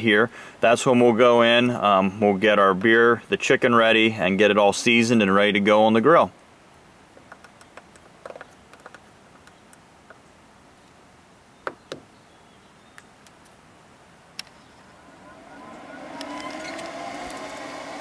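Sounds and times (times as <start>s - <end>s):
grill fan humming: 0.0s - 18.0s.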